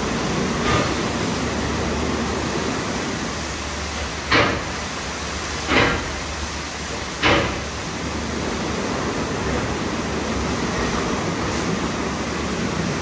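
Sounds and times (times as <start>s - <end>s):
car wash spray and brushes: 0.0s - 13.0s.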